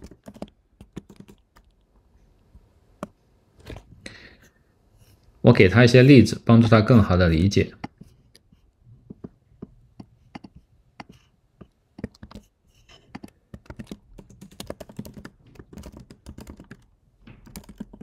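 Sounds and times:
computer keyboard typing: 0.0 - 1.8, 12.0 - 12.5, 13.1 - 18.0.

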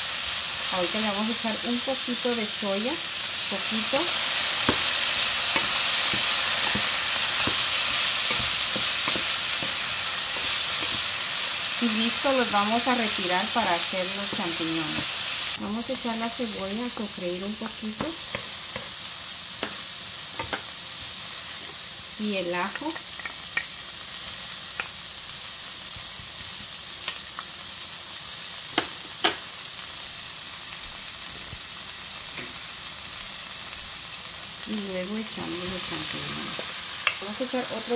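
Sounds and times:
zucchini sizzling in a frying pan: 0.0 - 37.9
wooden spatula knocking a pan: 5.5 - 9.8.

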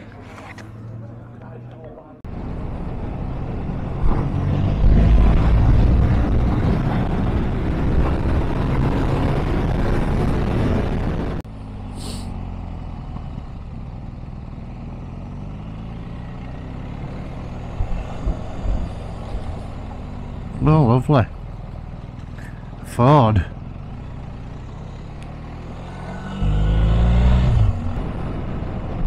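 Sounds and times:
motorcycle engine: 3.0 - 29.0.

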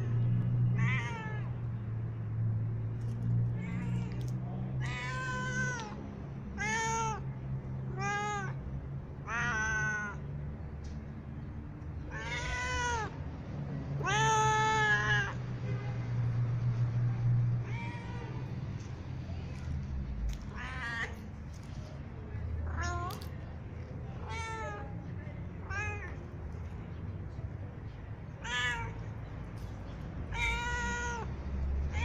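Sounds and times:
cat meowing: 0.8 - 1.5, 3.6 - 6.0, 7.9 - 8.6, 9.3 - 10.2, 12.1 - 13.2, 14.0 - 15.4, 20.3 - 21.2, 24.2 - 24.9, 28.4 - 29.1, 30.3 - 31.3.

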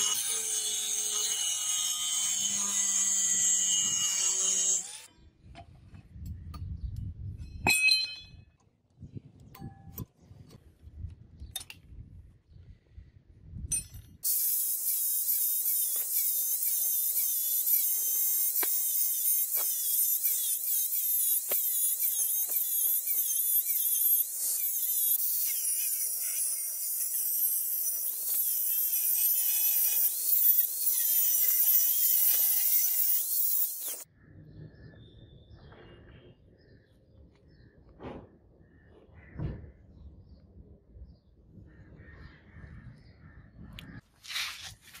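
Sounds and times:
angle grinder cutting steel: 0.0 - 5.1, 14.2 - 34.1.

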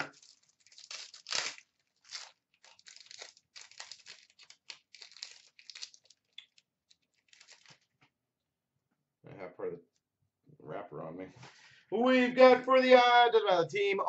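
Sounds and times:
wrapper tearing and crinkling: 0.0 - 7.9.

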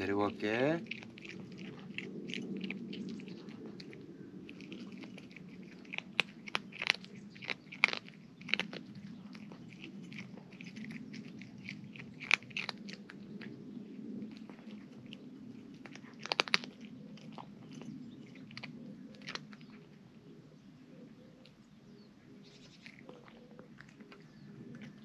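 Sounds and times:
cat crunching dry kibble: 0.0 - 20.2, 22.7 - 25.0.

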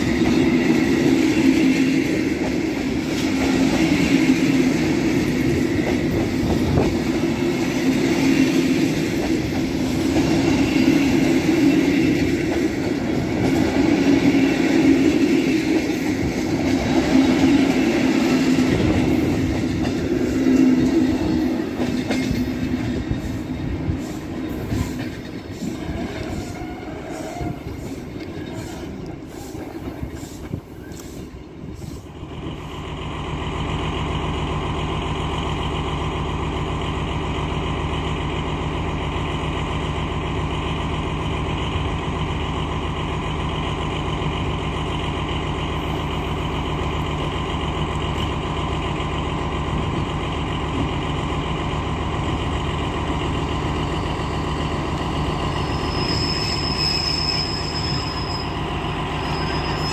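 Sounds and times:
train coaches clicking over rail joints: 0.0 - 32.1
train equipment humming: 0.0 - 59.9.

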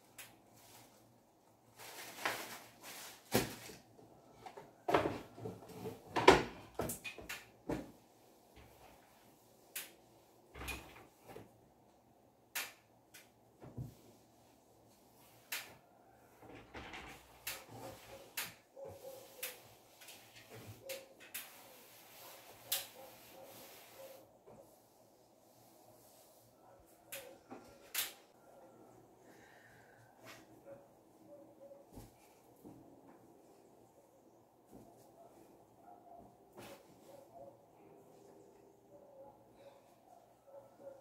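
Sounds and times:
rustling: 0.4 - 3.9.

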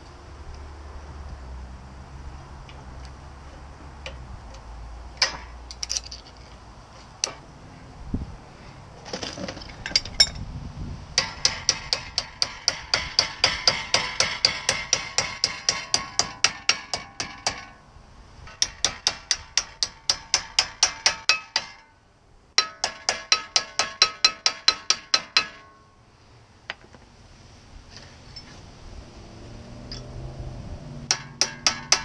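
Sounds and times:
hammer tapping on metal: 11.2 - 17.8, 18.5 - 21.9, 22.6 - 25.8, 31.1 - 32.0.

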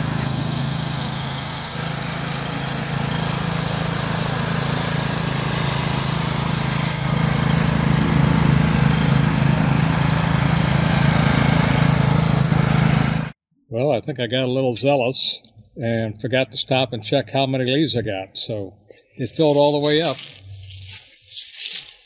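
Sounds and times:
riding mower engine drone: 0.0 - 13.4.

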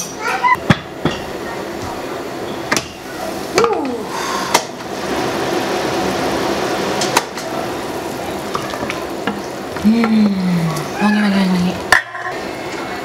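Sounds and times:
shallots sizzling in oil: 0.9 - 13.0.

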